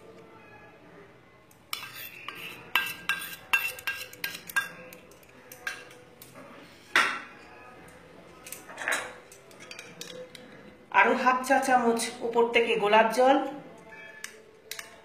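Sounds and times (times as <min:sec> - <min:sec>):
metal spoon clinking against pan: 0:01.7 - 0:06.0, 0:08.4 - 0:10.4, 0:13.9 - 0:15.0.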